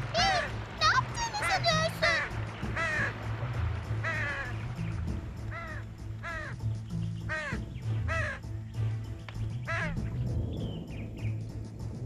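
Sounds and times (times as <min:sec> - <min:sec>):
low background music: 0:00.0 - 0:12.0
crow cawing: 0:01.3 - 0:03.2, 0:04.0 - 0:04.8, 0:05.4 - 0:06.6, 0:07.2 - 0:08.5, 0:09.7 - 0:10.0.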